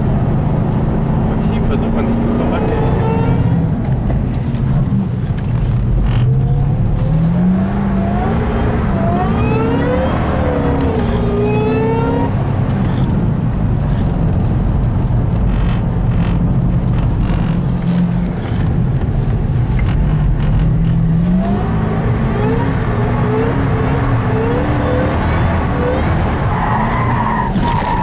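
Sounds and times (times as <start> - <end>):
car engine accelerating: 0.0 - 28.0
road noise inside car: 0.0 - 28.0.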